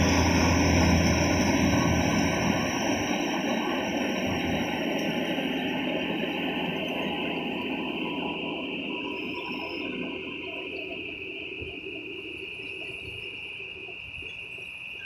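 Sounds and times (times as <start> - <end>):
combine harvester engine running: 0.0 - 8.6.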